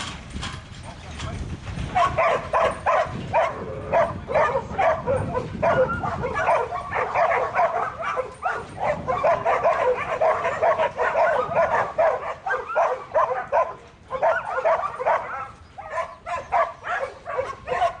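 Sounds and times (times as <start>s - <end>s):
dogs barking and yipping: 1.8s - 18.0s.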